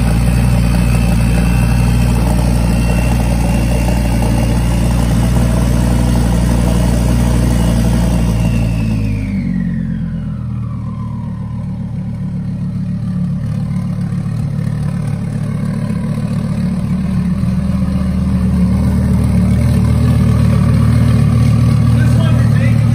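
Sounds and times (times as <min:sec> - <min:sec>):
whine falling in pitch: 0:00.0 - 0:12.8
car engine idling: 0:00.0 - 0:22.9.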